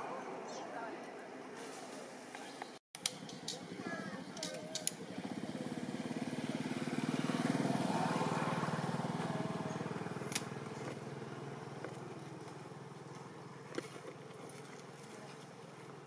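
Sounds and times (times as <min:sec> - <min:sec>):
vehicle engine passing: 0:03.1 - 0:16.0
sharp click: 0:04.4 - 0:05.0.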